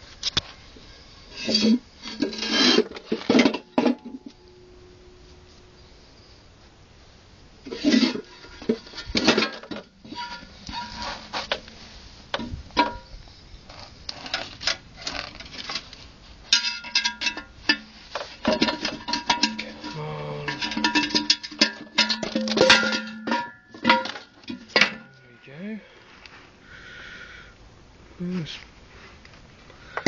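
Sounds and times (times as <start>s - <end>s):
metal shell knocking and clanking: 16.5s - 17.8s, 18.4s - 25.2s.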